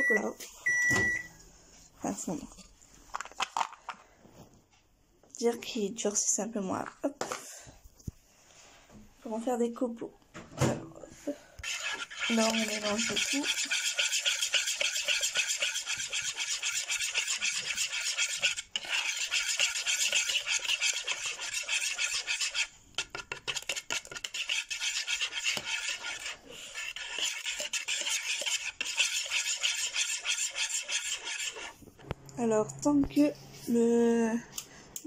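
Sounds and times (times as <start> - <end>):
whisk scraping plastic pitcher: 11.6 - 31.8.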